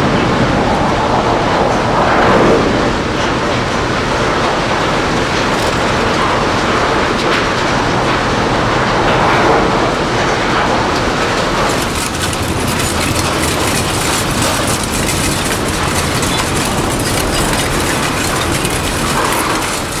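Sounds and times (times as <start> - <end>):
scrap-metal shredder running: 5.0 - 8.2, 10.1 - 20.0.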